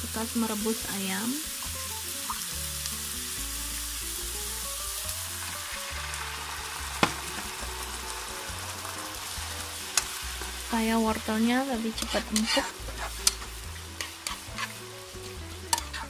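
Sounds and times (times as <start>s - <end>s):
vegetables sizzling in a wok: 0.0s - 16.0s
spatula stirring: 11.8s - 16.0s.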